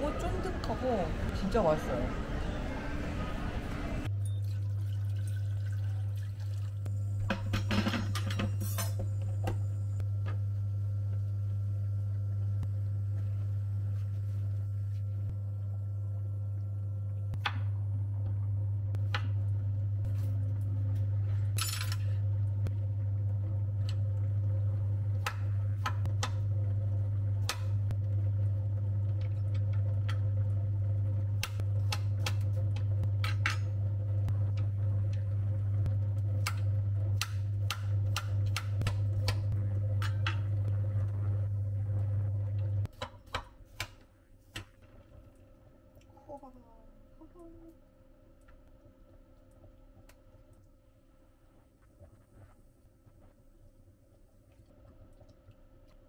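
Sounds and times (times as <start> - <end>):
low hum: 5.6 - 42.9.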